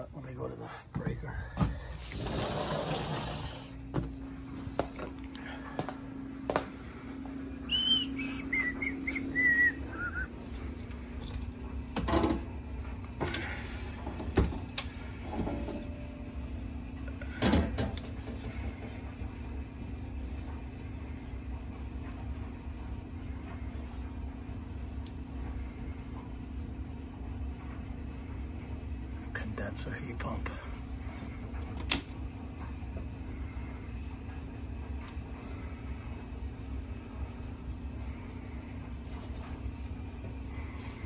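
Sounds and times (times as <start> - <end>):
steady low hum: 0.0 - 41.0
footsteps: 2.9 - 7.5.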